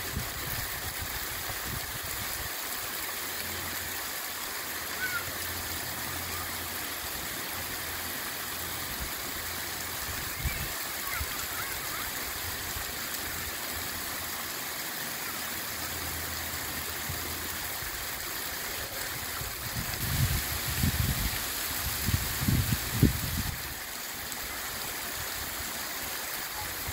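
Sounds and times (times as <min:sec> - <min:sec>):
small waterfall splashing: 0:00.0 - 0:26.9.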